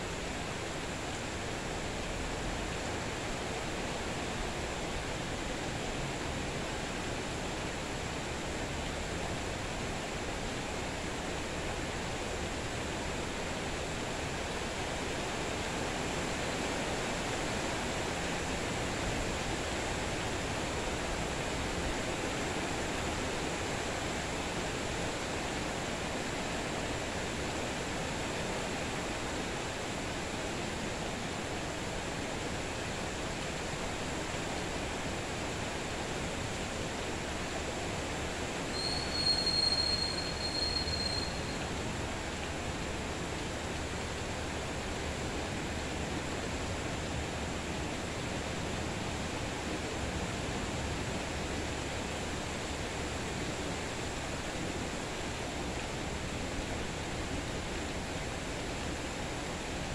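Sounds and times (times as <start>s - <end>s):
steady rain falling: 0.0s - 59.9s
high steady squeal: 38.7s - 41.8s.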